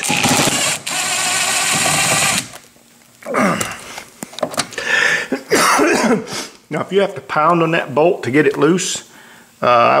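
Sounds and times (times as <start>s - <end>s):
power drill spinning: 0.0s - 2.6s.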